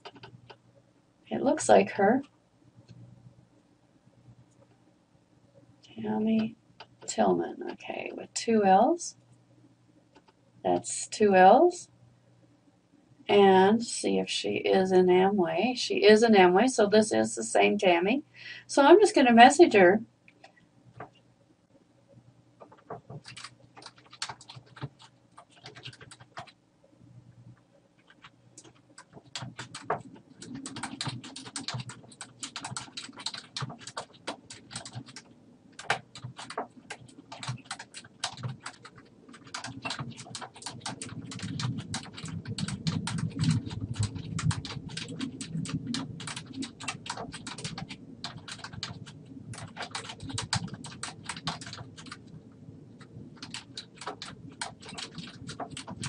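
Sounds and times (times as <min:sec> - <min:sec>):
keyboard typing: 0:00.0 - 0:00.6, 0:22.6 - 0:26.6, 0:28.0 - 0:52.3, 0:53.0 - 0:56.0.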